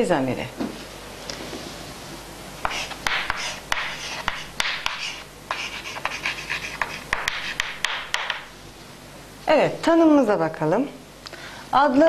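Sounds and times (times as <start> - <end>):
chalk scratching on chalkboard: 2.6 - 8.3
chalk tapping on board: 2.6 - 8.5.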